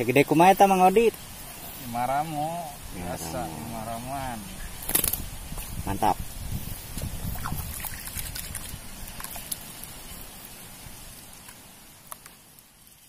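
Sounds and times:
outdoor background noise: 0.0 - 13.0
small clicks and crackle: 11.4 - 12.7.

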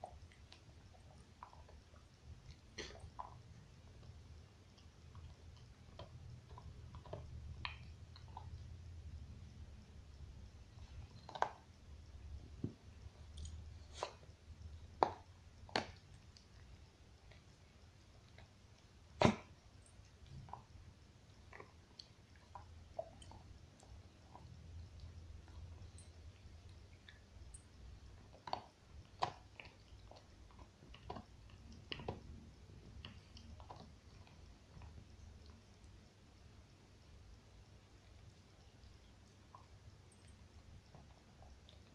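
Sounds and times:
dog gnawing on a bone: 28.2 - 35.6.

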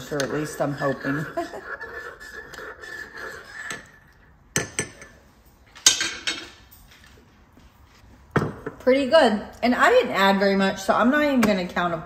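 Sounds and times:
spoon stirring coffee in a mug: 0.0 - 6.6.

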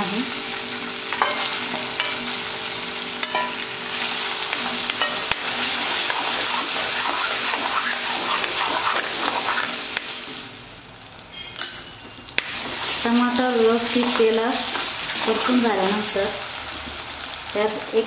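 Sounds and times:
tomato sizzling in hot oil: 0.0 - 18.0
spatula scraping and tapping pan: 1.1 - 2.3, 3.2 - 3.6, 4.5 - 10.4, 12.4 - 16.2.

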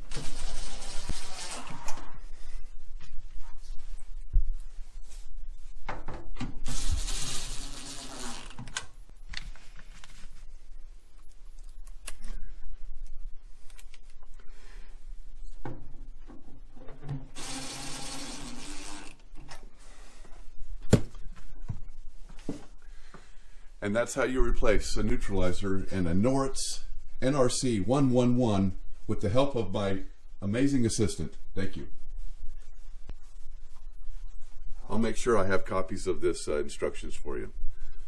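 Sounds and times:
cordless drill running: 6.7 - 8.5, 17.4 - 19.2.

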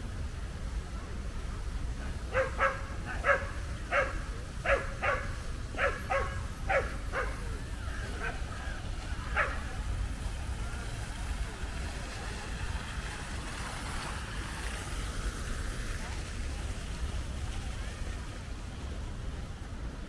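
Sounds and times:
low rumble of city traffic: 0.0 - 20.0
dog barking: 2.3 - 7.5, 9.4 - 9.6.

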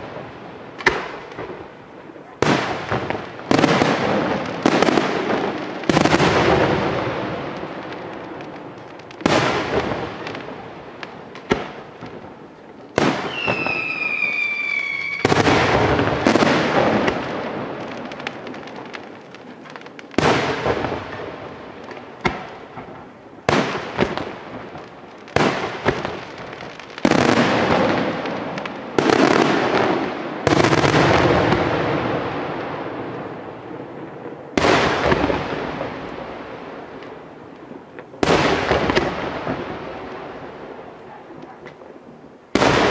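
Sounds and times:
firework whistle: 13.1 - 15.7.

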